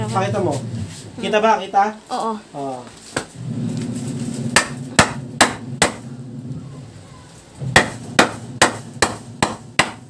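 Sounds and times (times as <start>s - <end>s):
hammer pounding on wood: 4.6s - 6.1s, 7.6s - 10.0s.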